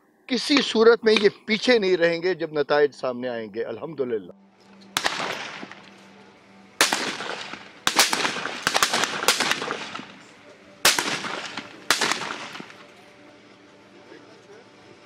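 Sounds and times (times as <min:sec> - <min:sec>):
rifle shots echoing: 0:05.0 - 0:06.0, 0:06.8 - 0:13.0.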